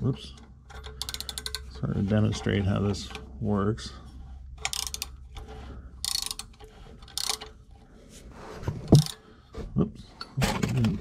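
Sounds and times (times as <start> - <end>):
wrench metallic clicks and scrapes: 0.2 - 7.8, 8.7 - 9.2.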